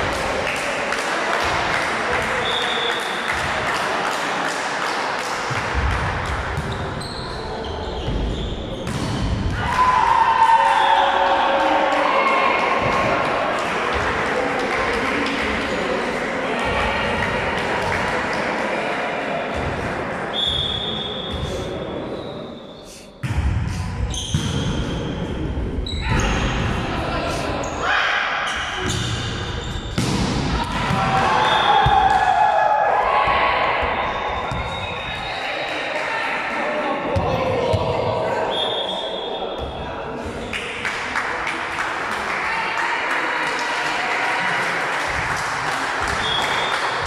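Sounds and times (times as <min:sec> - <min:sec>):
echoing chatter in a gym hall: 0:00.0 - 0:47.0
volleyball slaps and thuds: 0:08.8 - 0:09.6, 0:29.8 - 0:32.3
referee's whistle: 0:20.3 - 0:23.1, 0:31.4 - 0:31.9, 0:38.5 - 0:39.4, 0:46.2 - 0:46.8.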